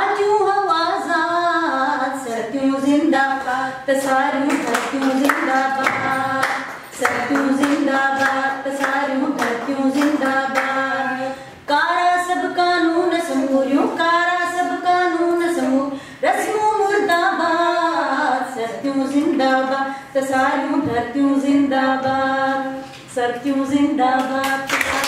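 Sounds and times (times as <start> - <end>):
woman singing unaccompanied: 0.0 - 25.0
hands clapping along: 4.0 - 10.8, 24.2 - 25.0.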